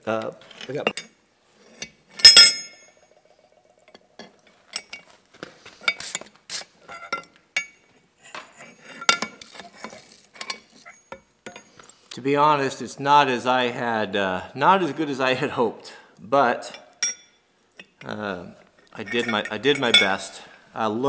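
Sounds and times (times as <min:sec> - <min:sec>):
tools clinking on steel: 0:00.6 - 0:01.2, 0:01.8 - 0:03.1, 0:06.9 - 0:07.9, 0:08.9 - 0:11.8, 0:16.7 - 0:18.0, 0:19.0 - 0:20.4
metallic clang on anvil: 0:02.2 - 0:03.0.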